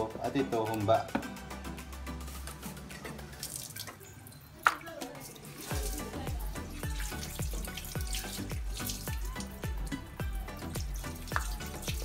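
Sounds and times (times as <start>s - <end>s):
background music: 0.0s - 12.0s
water running and splashing: 2.6s - 12.0s
low steady thumping beat: 5.7s - 12.0s.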